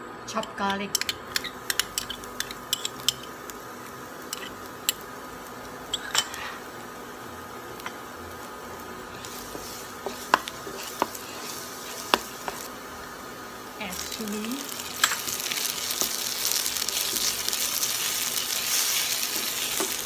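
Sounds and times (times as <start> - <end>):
utensils tapping a pan: 1.0 - 3.3, 9.5 - 11.2, 12.0 - 12.7, 15.0 - 16.2, 18.8 - 20.0
garlic sizzling in oil: 1.0 - 20.0.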